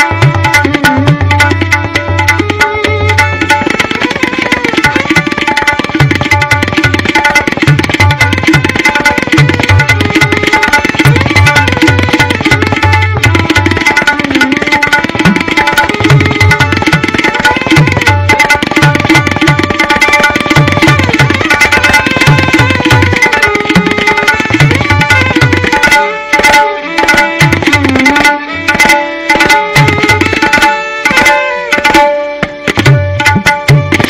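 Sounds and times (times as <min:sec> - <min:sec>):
tabla drumming: 0:00.0 - 0:34.0
violin repeating melody: 0:00.0 - 0:34.0.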